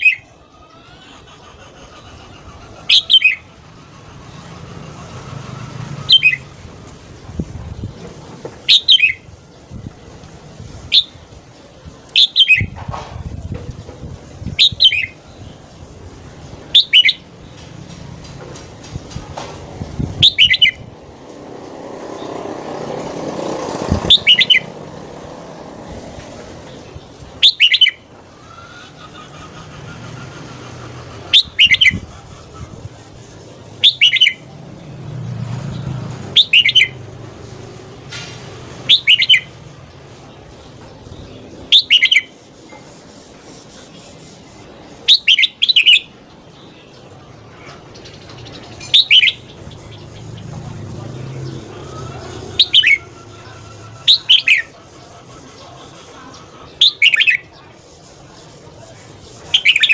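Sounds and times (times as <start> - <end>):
bulbul singing: 2.6 - 8.0, 8.6 - 9.9, 12.0 - 12.8, 14.4 - 18.4, 19.8 - 21.1, 23.8 - 24.8, 26.6 - 59.9.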